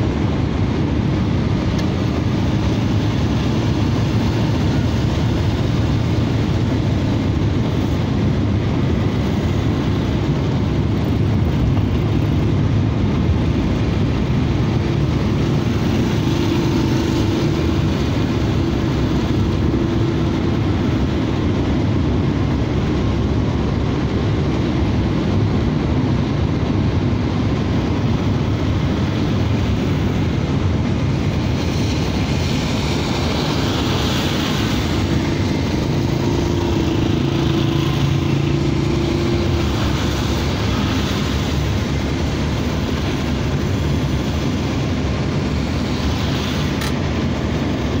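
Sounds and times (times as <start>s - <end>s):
car rumble on wet road: 0.0s - 48.0s
passing minibus humming: 0.0s - 48.0s
tyre hiss on wet road: 31.5s - 35.1s, 45.5s - 47.0s.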